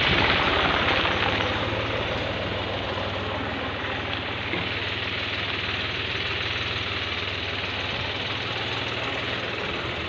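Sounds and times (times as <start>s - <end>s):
vehicle engine at low revs: 0.0s - 10.0s.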